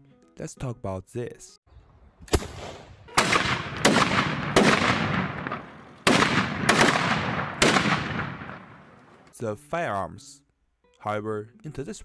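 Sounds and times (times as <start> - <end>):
musket shots echoing: 2.3 - 9.2.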